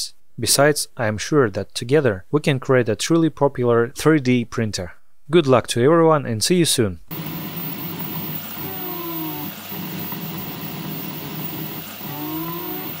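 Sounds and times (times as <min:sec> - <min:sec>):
fan hum: 0:07.1 - 0:13.0
stepper motors whining: 0:07.1 - 0:13.0.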